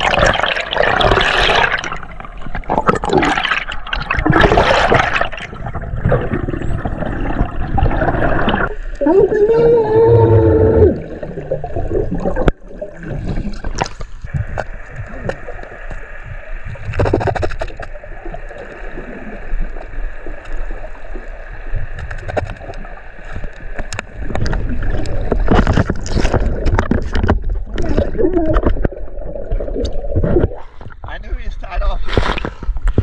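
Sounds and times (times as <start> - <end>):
exhaled bubbles: 0.0 - 21.9, 23.8 - 31.1
gurgling water: 0.0 - 31.2
muffled underwater yell: 9.0 - 11.2
small clicks and pops: 21.9 - 29.0.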